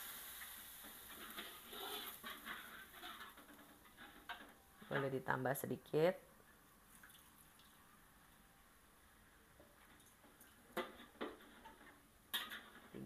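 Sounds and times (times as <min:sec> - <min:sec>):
metal spatula scraping a wok: 0:00.8 - 0:05.0.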